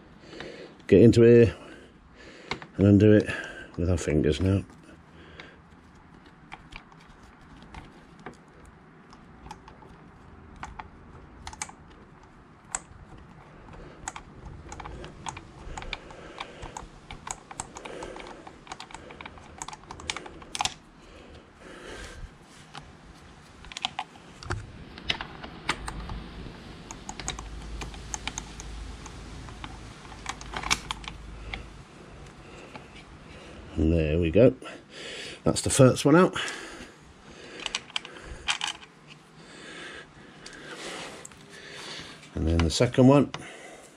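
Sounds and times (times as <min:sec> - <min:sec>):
small clicks and taps on metal: 0:05.4 - 0:20.8, 0:26.9 - 0:31.7.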